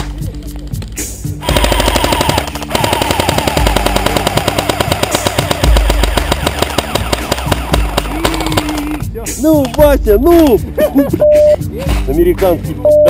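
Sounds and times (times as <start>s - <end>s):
airsoft machine gun bursts: 1.4s - 9.0s.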